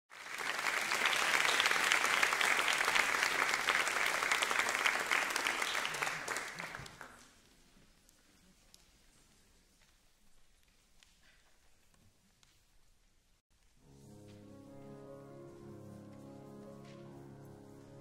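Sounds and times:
audience applauding: 0.1s - 7.4s.

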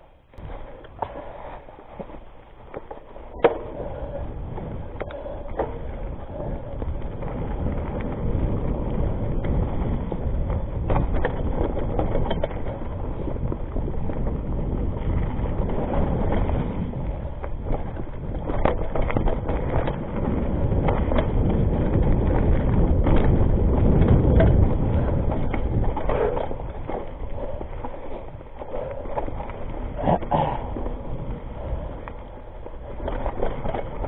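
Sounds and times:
bike tyres on dirt: 0.0s - 34.0s
bike rattling and knocking: 0.4s - 34.0s.

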